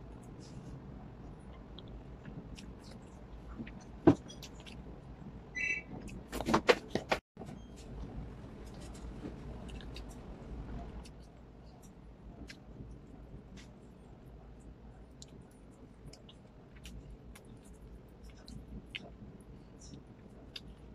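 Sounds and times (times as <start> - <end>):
person chewing: 15.1 - 19.2.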